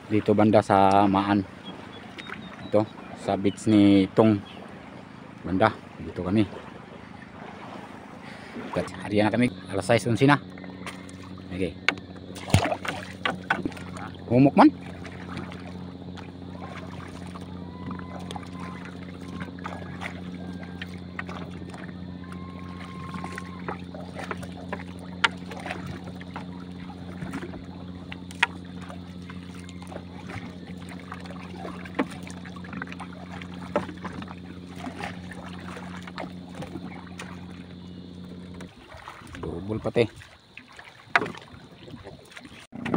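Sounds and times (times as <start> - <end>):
steady low hum: 0.0 - 42.1
net knocking against boat: 10.5 - 39.4, 41.0 - 41.6.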